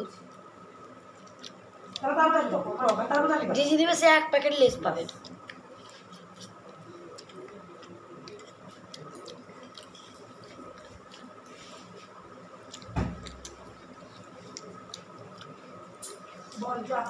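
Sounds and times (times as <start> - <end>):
quiet chewing: 0.1 - 2.0, 4.9 - 16.6
thump: 12.9 - 13.2.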